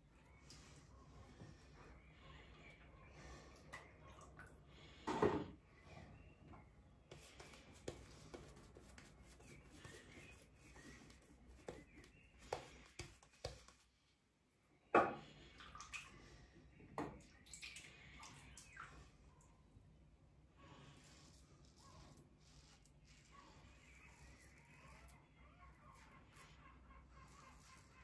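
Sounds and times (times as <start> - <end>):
water dripping: 15.6 - 16.2, 17.0 - 19.1.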